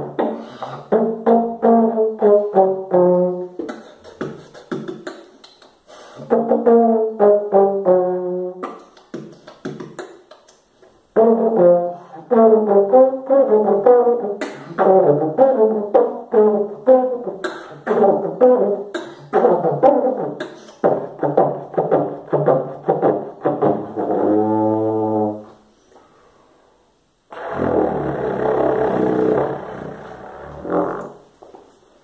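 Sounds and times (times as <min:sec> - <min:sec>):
beatboxer imitating trombone: 0:00.0 - 0:25.6, 0:27.3 - 0:31.2
mouth percussion clicks: 0:03.6 - 0:06.2, 0:08.6 - 0:11.0, 0:20.4 - 0:21.5.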